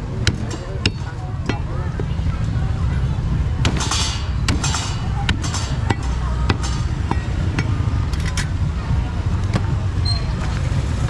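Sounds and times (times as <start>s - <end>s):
low rumble: 0.0s - 11.0s
market voices: 0.0s - 11.0s
sharp knocks: 3.6s - 7.8s.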